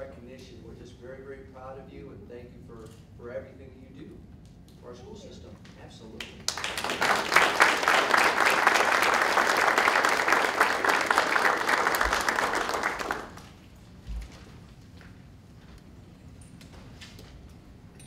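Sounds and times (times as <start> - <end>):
people applauding: 6.2 - 13.6.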